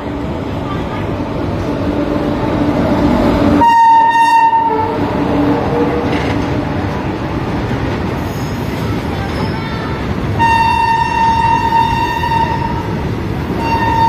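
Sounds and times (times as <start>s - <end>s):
train rumbling and clattering: 0.0s - 14.0s
locomotive air horn: 3.6s - 5.0s, 10.4s - 12.9s, 13.6s - 14.0s.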